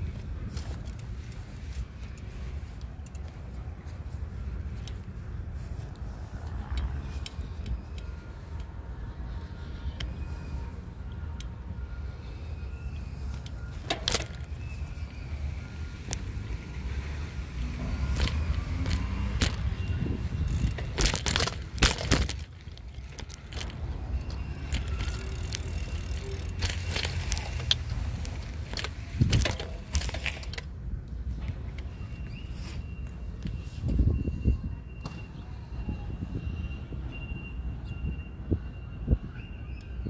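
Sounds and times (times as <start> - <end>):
bicycle rattling clicks and knocks: 0.0 - 34.1
low rumble of bicycle ride: 0.0 - 40.0.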